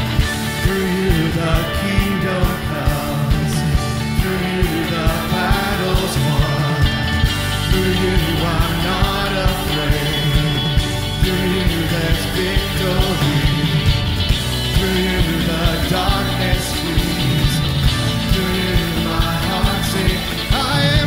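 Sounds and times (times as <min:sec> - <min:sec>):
rock band playing: 0:00.0 - 0:21.0
steady drum beat: 0:00.0 - 0:21.0
voices singing: 0:00.0 - 0:21.0.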